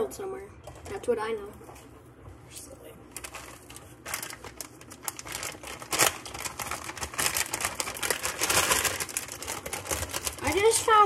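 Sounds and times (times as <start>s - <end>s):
plastic bag crinkling: 3.1s - 11.0s.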